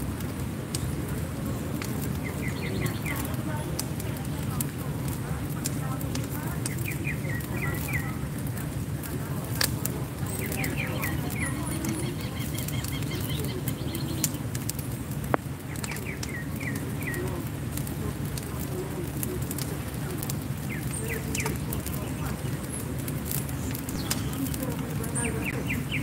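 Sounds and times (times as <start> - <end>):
low background noise: 0.0 - 26.0
wood fire crackling: 0.0 - 26.0
bird chirping: 2.1 - 3.6, 6.5 - 8.3, 10.2 - 14.4, 15.7 - 17.4, 23.5 - 26.0.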